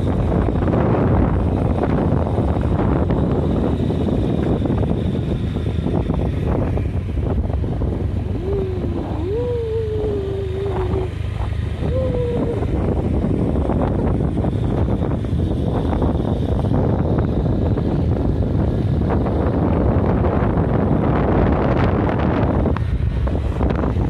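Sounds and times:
vehicle running noise: 0.0 - 24.0
wind buffeting microphone: 0.0 - 24.0
wavering tone sliding down: 8.3 - 13.1.

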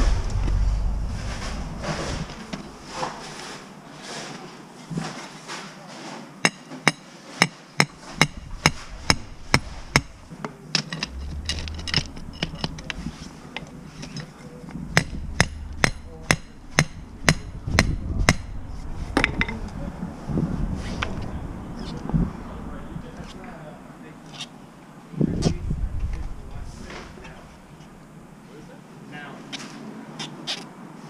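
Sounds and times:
low steady hum: 0.0 - 3.5, 8.0 - 28.8
sledgehammer driving stakes: 7.9 - 19.8.

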